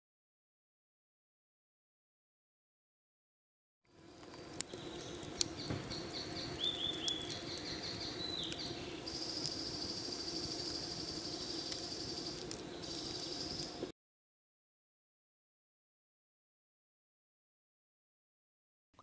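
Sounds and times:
campfire crackling and popping: 3.9s - 13.9s
high insect buzz: 3.9s - 13.9s
birds chirping: 4.0s - 13.9s.

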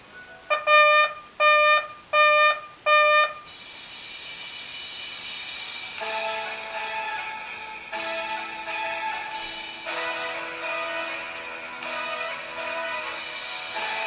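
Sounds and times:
instrumental background music: 3.5s - 14.0s.

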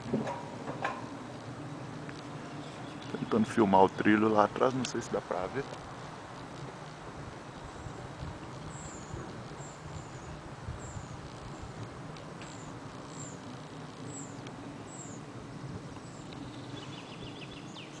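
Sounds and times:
sled hauled along rail rumbling: 0.0s - 18.0s
small bird chirping: 2.1s - 3.7s, 7.5s - 11.7s, 12.4s - 15.3s, 16.0s - 18.0s.

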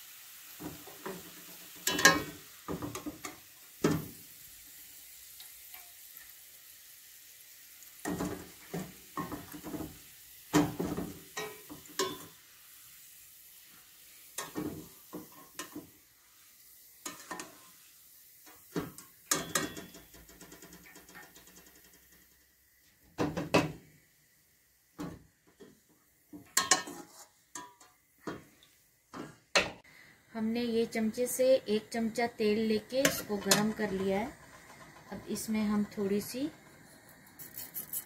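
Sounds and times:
hot oil sizzling: 0.0s - 38.0s
metal skimmer clinking on pan: 1.9s - 2.3s, 11.4s - 12.3s, 19.3s - 20.2s.

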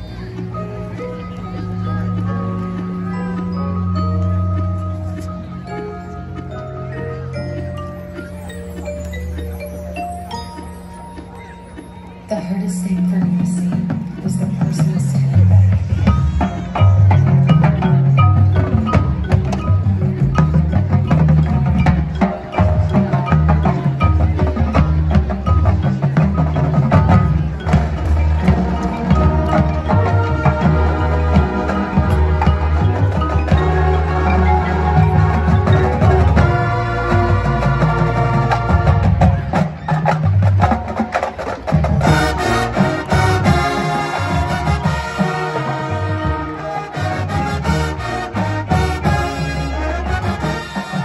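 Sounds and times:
mallet percussion notes: 0.0s - 51.0s
marching band playing: 0.0s - 51.0s
percussion strikes: 0.0s - 51.0s
low bass notes: 12.1s - 40.6s.

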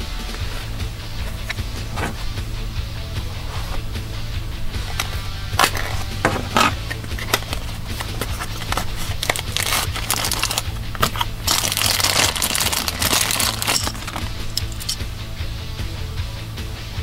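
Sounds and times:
background music: 0.0s - 17.0s
plastic bag crinkling: 4.8s - 15.0s.

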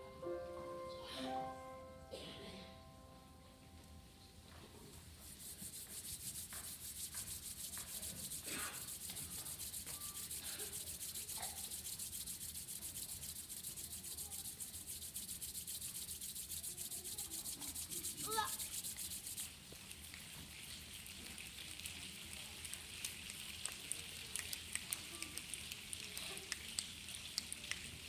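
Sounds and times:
people rubbing palms together: 4.5s - 28.0s.

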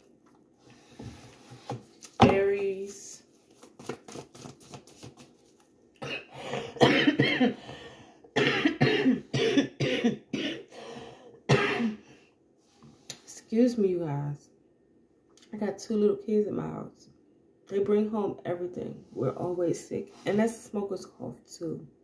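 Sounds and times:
woman coughing: 6.0s - 7.6s, 8.4s - 10.7s, 11.5s - 12.0s.

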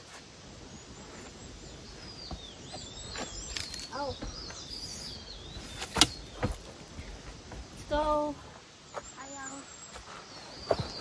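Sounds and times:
steady outdoor hiss: 0.0s - 11.0s
birds whistling: 0.8s - 6.7s, 8.9s - 11.0s.

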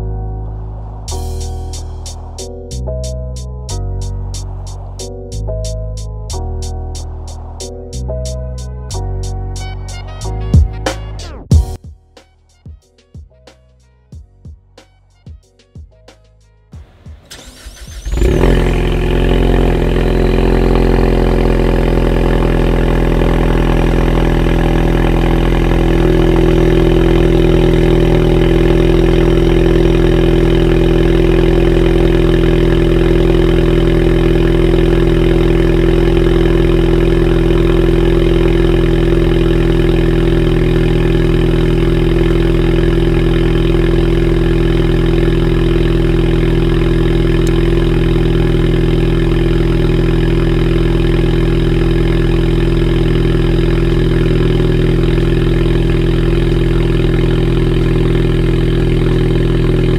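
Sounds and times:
car engine idling loudly: 0.0s - 8.7s, 16.8s - 59.9s
car engine cranking: 16.8s - 59.9s.

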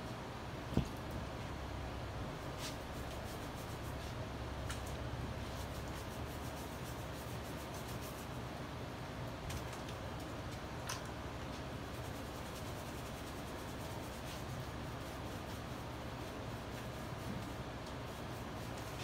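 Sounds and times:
low machine hum: 0.0s - 19.0s
hands rubbing wet plaster fabric: 2.5s - 4.2s, 5.4s - 8.4s, 11.8s - 19.0s.

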